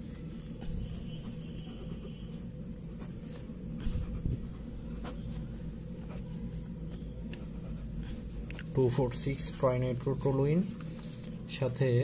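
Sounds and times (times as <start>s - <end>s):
steady low hum: 0.0s - 12.0s
pen scratching on paper: 0.6s - 6.3s, 7.3s - 8.3s.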